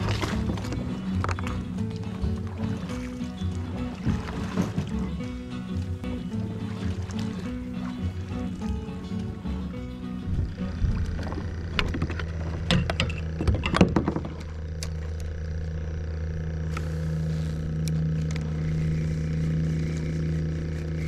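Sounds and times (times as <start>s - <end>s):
boat motor running: 0.0s - 21.0s
sharp knocks and clatters: 11.1s - 14.6s.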